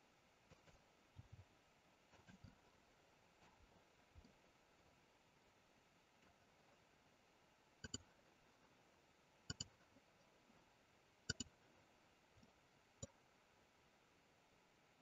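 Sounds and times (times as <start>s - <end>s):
computer mouse clicks: 7.8s - 8.1s, 9.5s - 9.8s, 11.3s - 11.5s.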